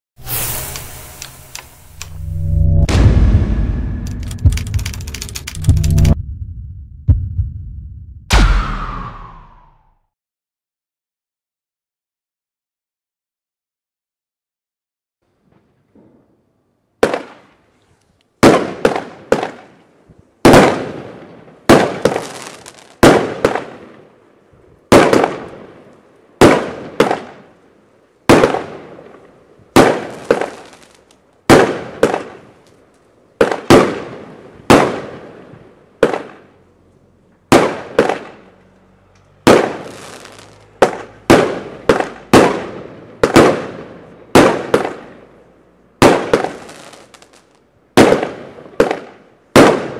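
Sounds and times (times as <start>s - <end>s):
firework bangs: 18.4s - 19.7s, 20.4s - 24.0s, 24.9s - 27.5s, 28.2s - 32.6s, 33.4s - 36.5s, 37.5s - 38.6s, 39.4s - 45.3s, 46.0s - 49.9s.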